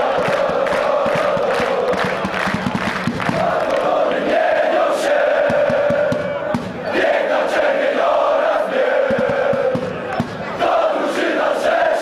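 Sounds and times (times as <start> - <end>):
crowd chanting in unison: 0.0 - 12.0.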